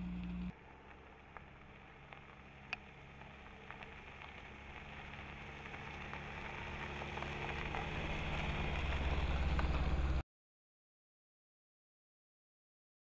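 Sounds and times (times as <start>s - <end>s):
car engine hum: 0.0s - 10.2s
tyres crackling over gravel: 0.4s - 10.1s
small stone ticks: 0.8s - 9.8s.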